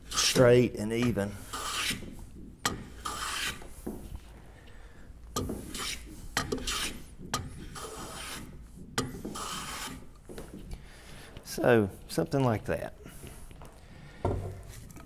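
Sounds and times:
hand plane shaving wood: 0.0s - 2.2s, 2.8s - 3.7s, 5.6s - 7.0s, 7.6s - 8.5s, 9.1s - 10.1s.

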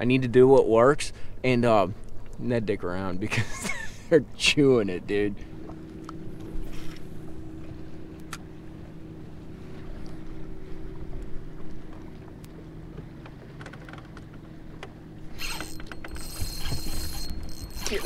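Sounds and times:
water lapping at boat hull: 0.0s - 18.0s
steady low hum: 0.3s - 18.0s
fishing reel drag buzzing: 15.2s - 18.0s.

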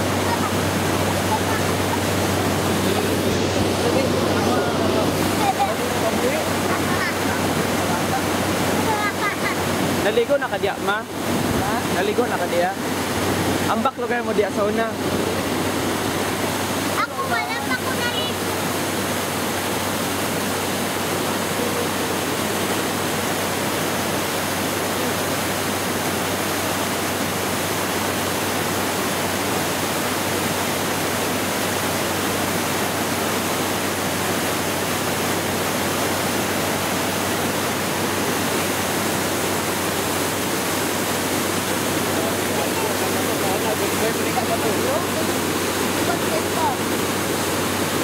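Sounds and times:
white water rushing: 0.0s - 48.0s.

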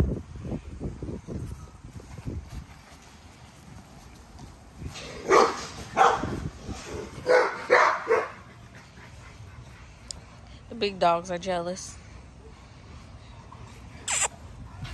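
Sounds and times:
dog barking: 5.2s - 6.3s, 7.2s - 8.4s.

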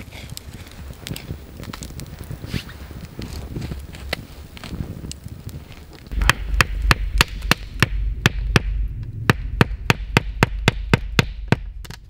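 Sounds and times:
low rumble: 6.0s - 12.0s.

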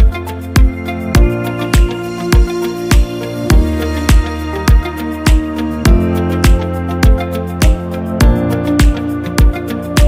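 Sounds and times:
low kick drum beat: 0.0s - 9.6s.

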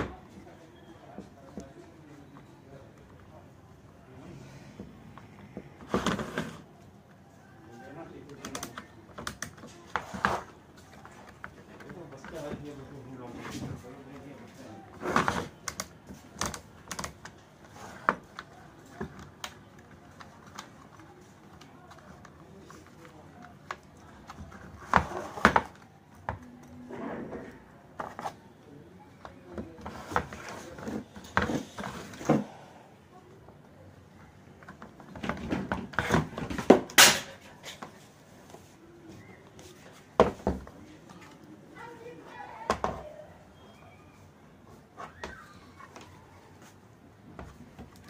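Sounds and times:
plastic parts clicking and knocking: 8.2s - 12.8s, 15.0s - 26.8s.

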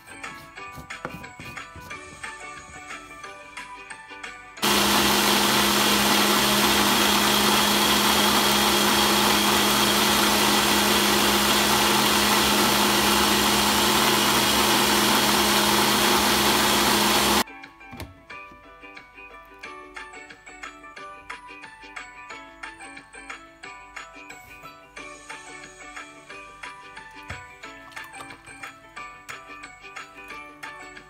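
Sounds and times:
blender motor running: 4.6s - 17.4s.

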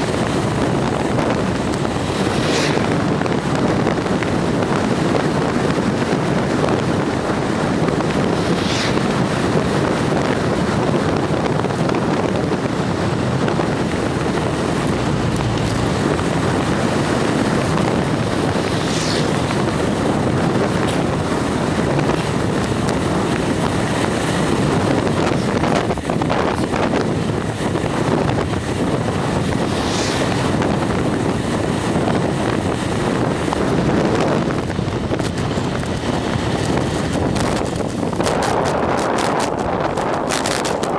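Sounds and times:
wind buffeting microphone: 0.0s - 40.9s.

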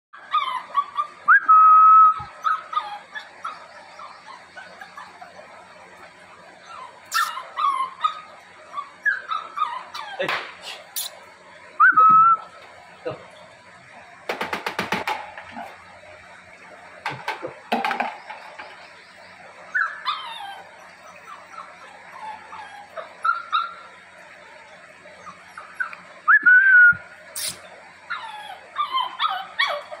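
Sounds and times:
puppies whining and yipping: 0.2s - 30.0s
sharp knocks: 14.3s - 15.5s.

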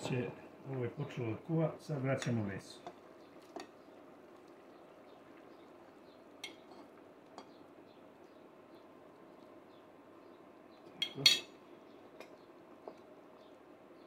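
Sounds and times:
faint steady hiss: 0.0s - 14.0s
spoon clinking on plate: 11.0s - 11.6s.

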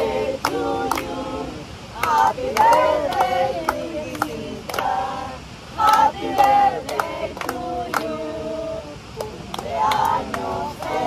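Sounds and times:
people singing together: 0.0s - 11.0s
hand claps: 0.4s - 1.2s, 2.0s - 5.0s, 5.8s - 8.2s, 9.2s - 11.0s.

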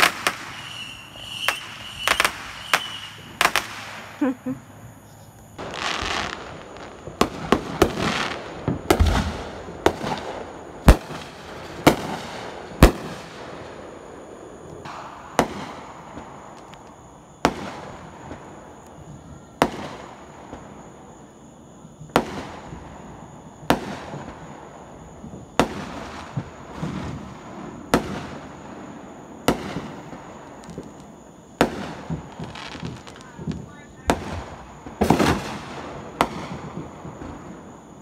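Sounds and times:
small firework pops: 0.0s - 4.2s, 5.4s - 13.4s, 14.6s - 20.8s, 22.1s - 22.8s, 27.9s - 28.4s, 29.4s - 38.0s
fireworks bangs: 0.0s - 38.0s.

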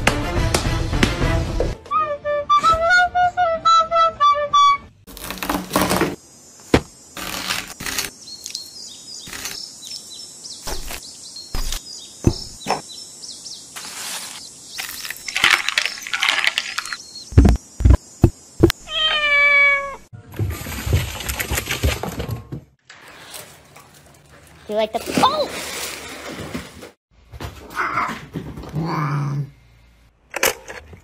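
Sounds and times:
heavier thumps: 11.6s - 12.8s
cat meowing: 18.8s - 20.0s.

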